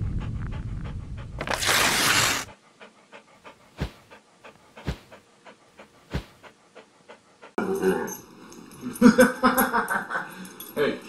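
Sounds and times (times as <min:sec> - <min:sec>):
dog panting: 0:00.0 - 0:01.5, 0:02.2 - 0:09.0.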